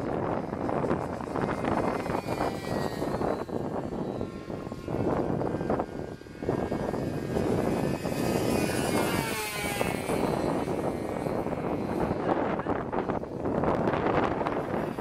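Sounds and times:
model airplane motor whining: 0:00.0 - 0:15.0.

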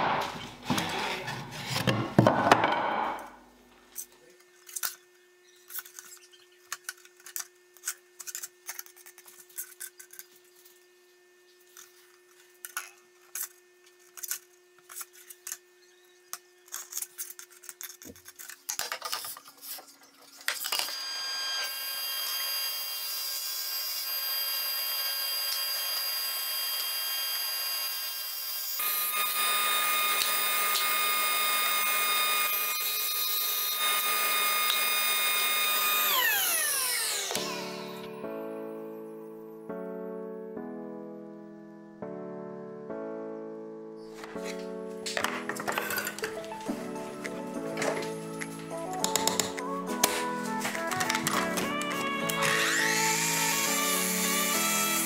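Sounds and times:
table saw whining: 0:20.2 - 0:39.1, 0:44.2 - 0:55.0
saw ripping through plywood: 0:52.2 - 0:55.0.

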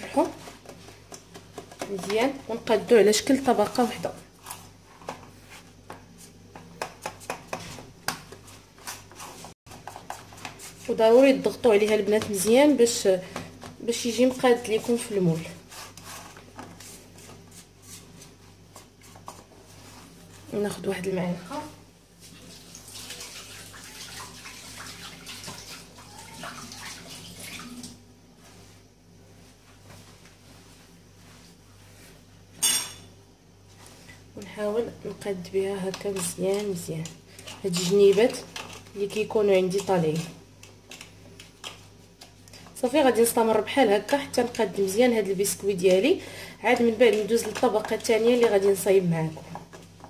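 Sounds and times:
tap water running and splashing: 0:22.2 - 0:28.0.

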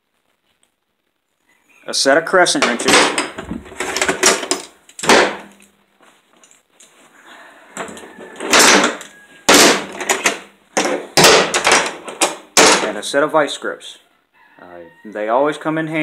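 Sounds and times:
metal tools clattering on concrete: 0:02.6 - 0:05.7.

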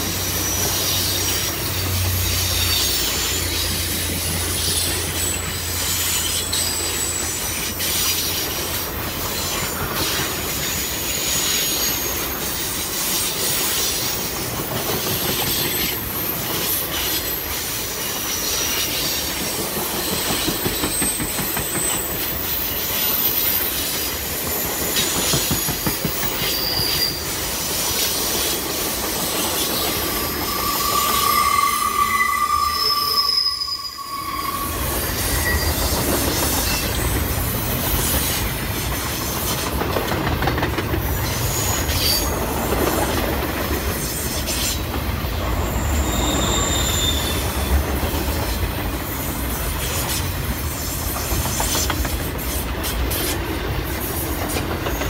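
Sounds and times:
train wheels rumbling on rails: 0:00.0 - 0:55.0
low loud squeal: 0:00.3 - 0:12.4, 0:20.0 - 0:38.5, 0:44.0 - 0:50.9
high-pitched wheel squeal: 0:00.4 - 0:08.6, 0:20.0 - 0:28.4, 0:29.0 - 0:37.3, 0:44.0 - 0:50.9
clicks over rail joints: 0:38.0 - 0:41.4.

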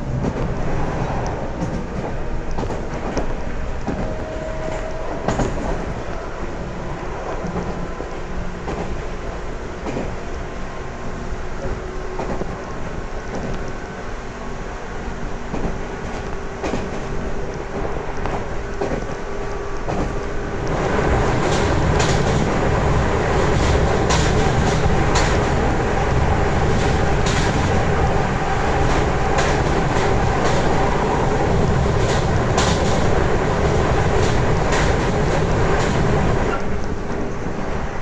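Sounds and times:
wheels clacking over rail joints: 0:00.0 - 0:10.6, 0:11.6 - 0:38.0
train running rumble: 0:00.0 - 0:38.0.

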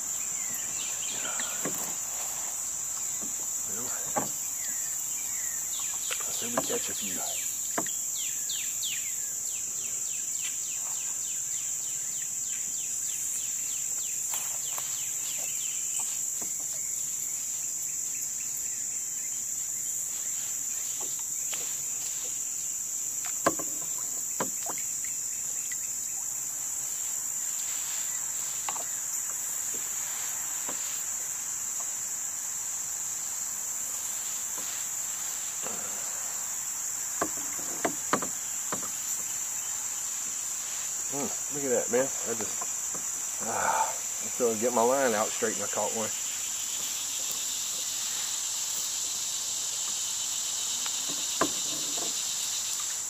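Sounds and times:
cicadas chorus: 0:00.0 - 0:53.0
sharp knocks: 0:37.2 - 0:39.0.

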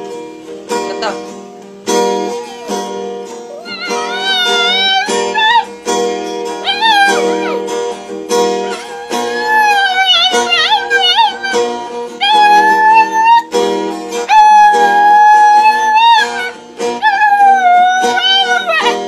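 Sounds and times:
strummed acoustic guitar: 0:00.0 - 0:19.0
dog howling: 0:02.2 - 0:05.7, 0:06.6 - 0:07.8, 0:08.5 - 0:13.5, 0:14.2 - 0:19.0.

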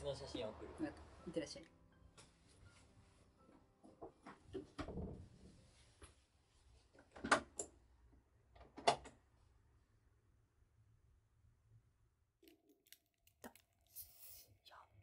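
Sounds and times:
door closing with soft knocks: 0:04.3 - 0:05.6.

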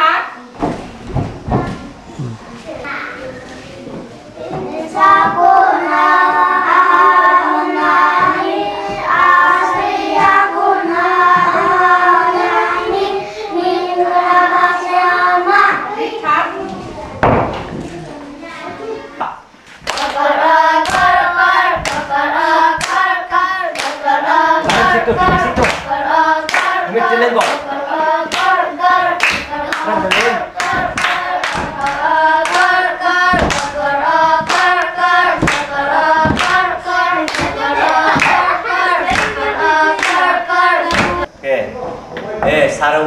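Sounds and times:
children singing: 0:03.2 - 0:19.2, 0:19.8 - 0:41.4
hands clapping: 0:19.8 - 0:20.2, 0:24.6 - 0:25.9, 0:26.5 - 0:26.8, 0:27.4 - 0:27.6, 0:29.2 - 0:32.7, 0:33.4 - 0:33.7, 0:34.4 - 0:35.6, 0:37.3 - 0:40.3.

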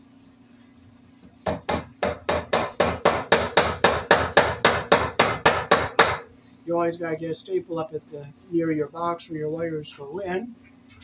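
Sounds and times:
hammer blows on wood: 0:01.5 - 0:06.3.

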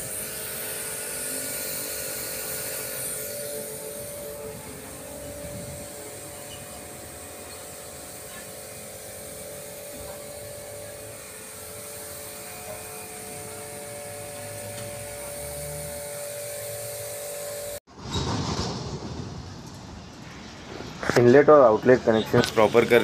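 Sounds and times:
high-pressure water jet hissing: 0:00.0 - 0:17.8, 0:22.1 - 0:23.0
pump motor humming: 0:00.0 - 0:17.8.

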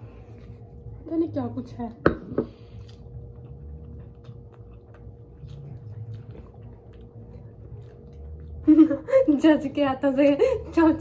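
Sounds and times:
soft low rumble: 0:00.0 - 0:11.0
person chewing food: 0:02.5 - 0:08.8.

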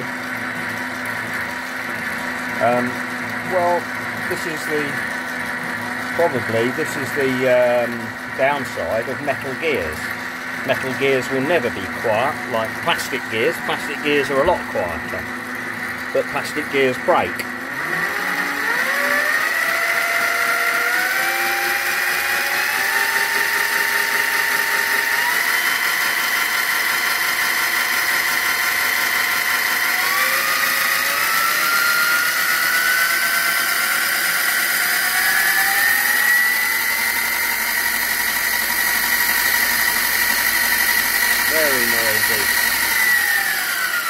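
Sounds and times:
lathe gear whine: 0:00.0 - 0:44.0
steady high-pitched whine: 0:00.0 - 0:44.0.

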